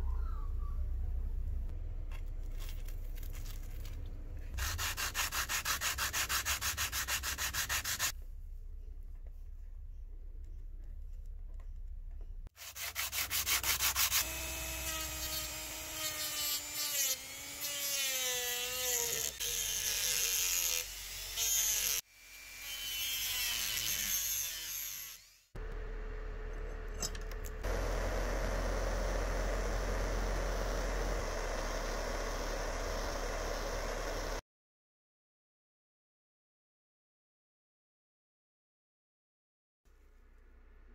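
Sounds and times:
rotary tool grinding metal: 12.6s - 25.5s.

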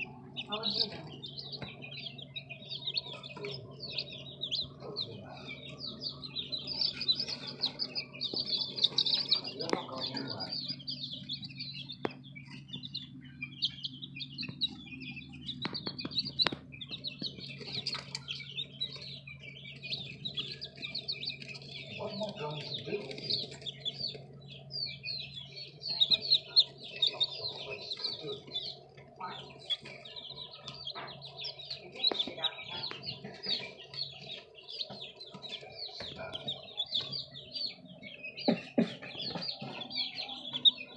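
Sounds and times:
chicks peeping: 0.0s - 40.9s
low steady hum: 0.0s - 40.9s.

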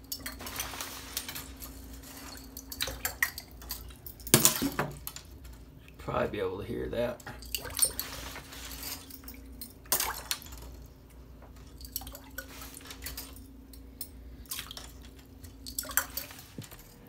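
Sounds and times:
steady low hum: 0.0s - 17.0s
light water splashing: 7.2s - 10.8s, 11.5s - 13.5s, 14.4s - 16.7s.

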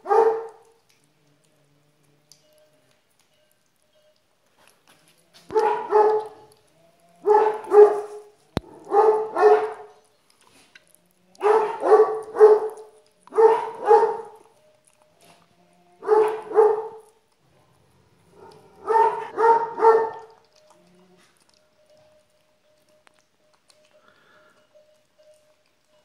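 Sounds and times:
puppy barking: 0.0s - 0.8s, 5.5s - 6.6s, 7.2s - 10.1s, 11.4s - 14.5s, 16.0s - 17.2s, 18.3s - 20.5s.

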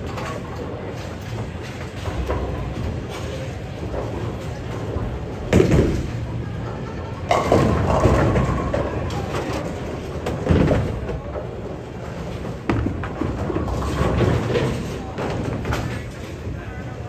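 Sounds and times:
bowling lanes noise: 0.0s - 17.0s
bowling balls striking pins: 7.2s - 16.1s.

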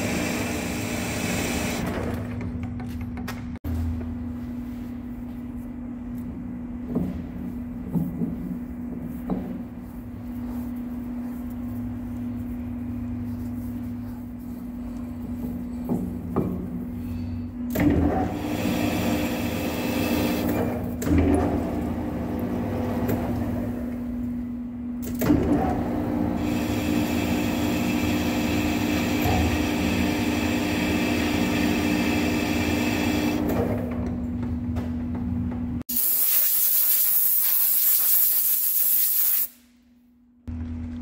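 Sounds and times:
metal cutting hiss: 35.9s - 39.6s.

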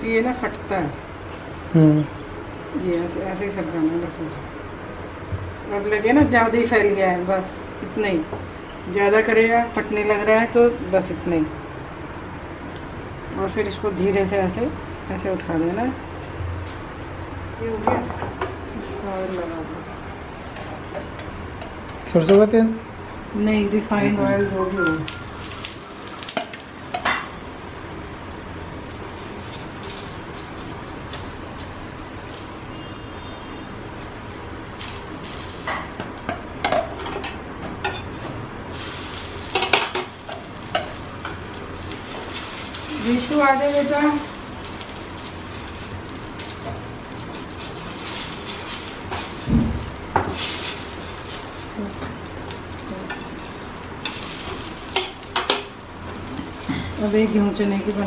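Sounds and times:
oil sizzling on a griddle: 0.0s - 11.6s, 23.6s - 58.0s
spitting oil crackles: 24.3s - 37.1s, 37.8s - 58.0s
steel ladle scraping a griddle: 50.1s - 52.2s, 52.8s - 58.0s.

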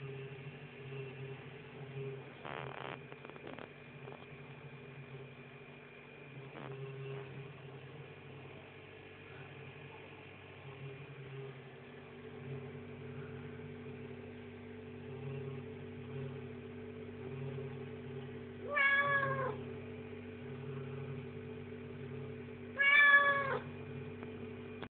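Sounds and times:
cat meowing: 18.7s - 19.6s, 22.8s - 23.7s.

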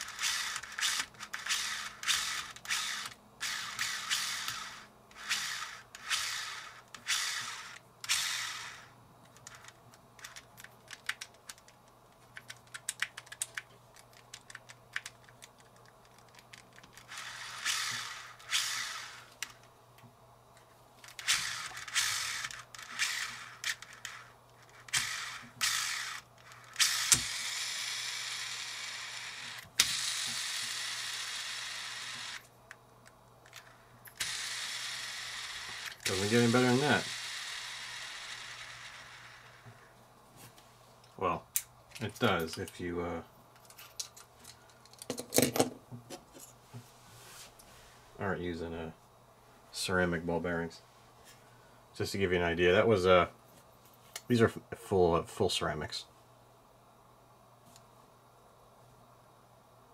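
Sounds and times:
fishing reel gears whirring: 0.0s - 8.9s, 17.1s - 19.3s, 21.2s - 32.4s, 34.2s - 39.6s
reel spool spinning freely: 0.0s - 8.9s, 17.1s - 19.3s, 21.2s - 24.3s, 24.9s - 32.4s, 34.2s - 39.5s
small reel clicks: 0.0s - 19.7s, 21.0s - 39.7s.

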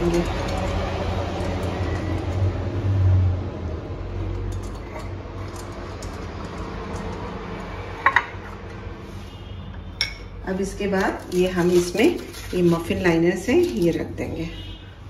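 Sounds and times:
brush clicking against tin: 0.0s - 2.8s, 4.2s - 7.7s.

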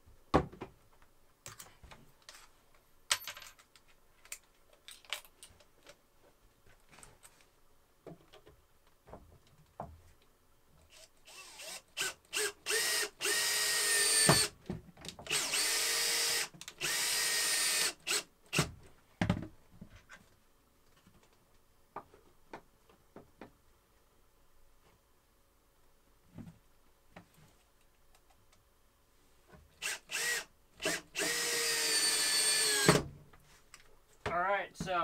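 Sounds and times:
power drill driving screws: 10.9s - 14.5s, 15.3s - 18.7s, 29.8s - 33.0s.

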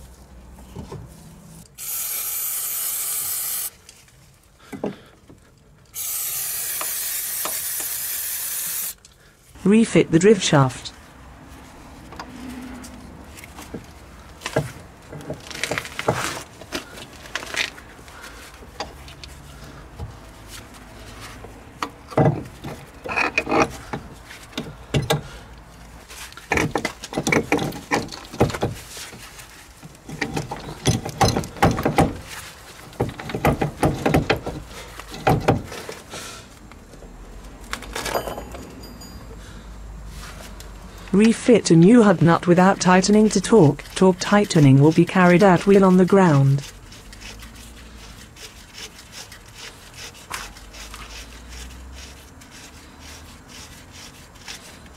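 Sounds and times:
metal clinks and scrapes: 22.7s - 24.6s, 37.8s - 39.4s.

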